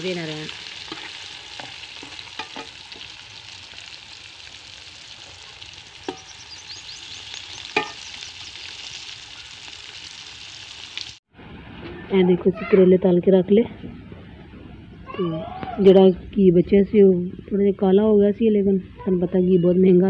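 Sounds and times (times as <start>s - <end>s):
vegetables sizzling in fat: 0.0s - 11.2s.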